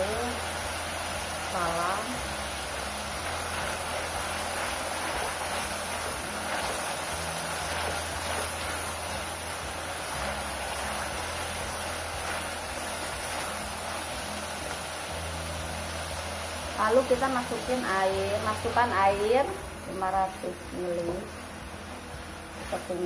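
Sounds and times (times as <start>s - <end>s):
chicken sizzling in a wok: 0.0s - 23.0s
spatula scraping a pan: 3.3s - 14.1s.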